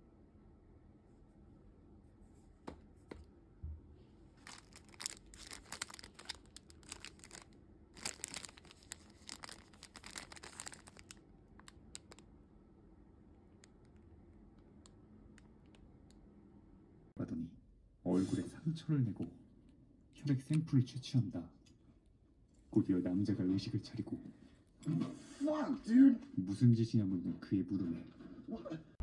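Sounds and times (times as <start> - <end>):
plastic wrapper crinkling: 4.4 - 12.3.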